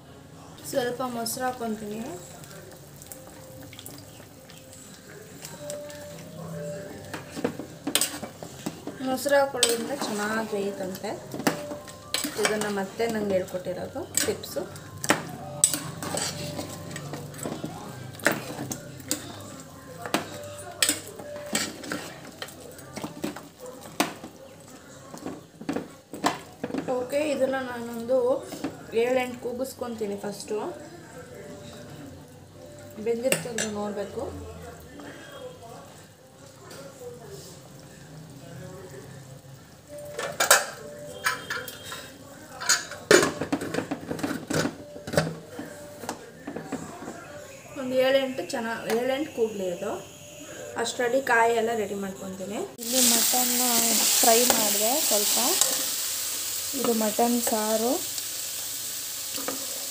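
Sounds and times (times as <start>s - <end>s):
steel ladle scraping a pot: 15.6s - 17.2s.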